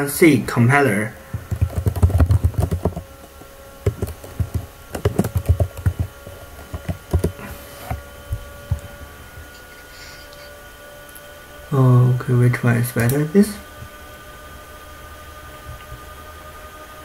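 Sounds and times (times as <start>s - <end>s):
computer keyboard typing: 1.3s - 7.4s.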